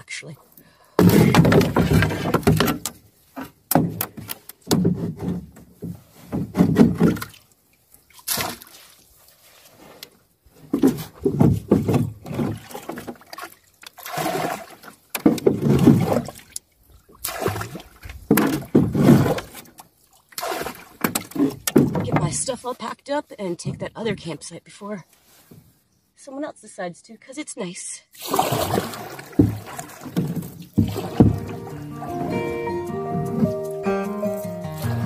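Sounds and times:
water splashing from bailer: 0:08.1 - 0:09.6, 0:12.0 - 0:22.3, 0:28.2 - 0:32.4.

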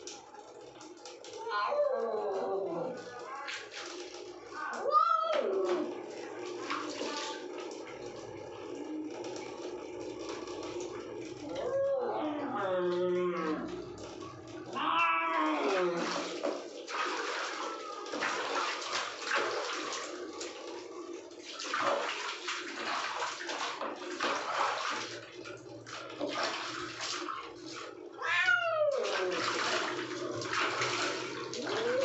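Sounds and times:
water splashing and sloshing: 0:00.0 - 0:32.0
cat meowing: 0:14.7 - 0:16.1, 0:28.2 - 0:29.6.

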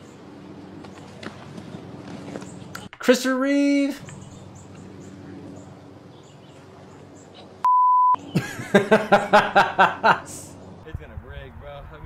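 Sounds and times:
high-pitched censor bleep: 0:07.6 - 0:08.2
man laughing: 0:08.3 - 0:10.6.

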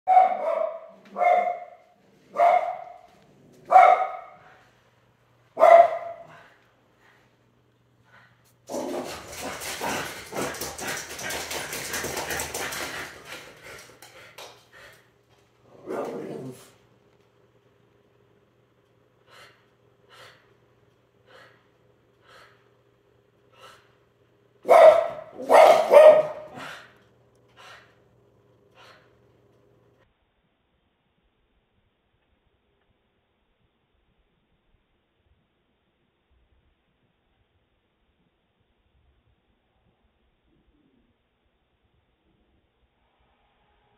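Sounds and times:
dog barking: 0:00.1 - 0:03.1, 0:03.7 - 0:04.6, 0:05.6 - 0:06.5, 0:24.6 - 0:26.9.

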